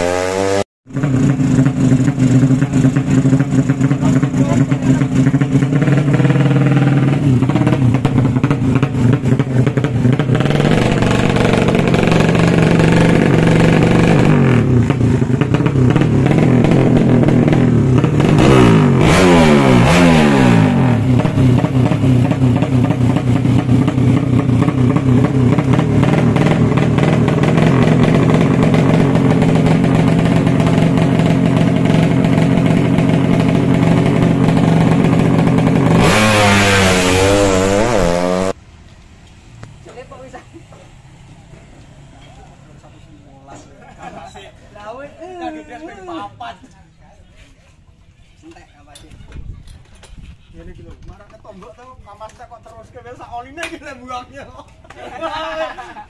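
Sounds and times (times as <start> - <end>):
motorcycle engine revving: 0.0 - 38.6.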